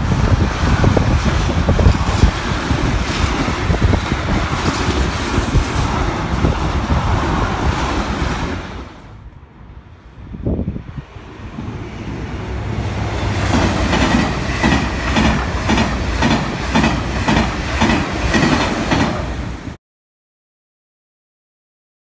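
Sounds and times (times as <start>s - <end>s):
high-speed train rushing past: 0.0s - 19.8s
train wheels clattering: 12.9s - 19.7s.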